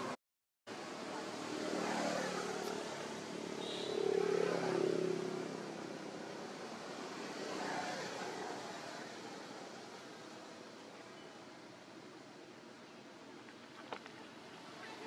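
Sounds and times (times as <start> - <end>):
steady outdoor hiss: 0.0 - 15.0
motor vehicle engine passing: 1.4 - 9.6.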